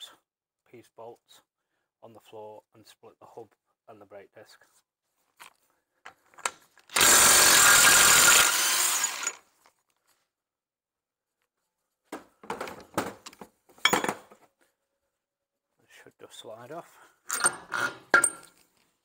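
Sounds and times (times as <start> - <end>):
parts knocking and clattering: 12.1 - 14.5, 17.3 - 18.8.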